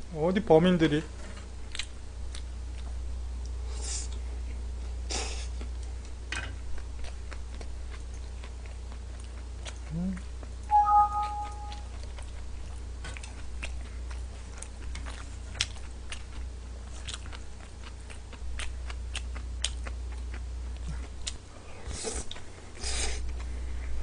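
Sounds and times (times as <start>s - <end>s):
chewing noodles: 4.8s - 23.9s.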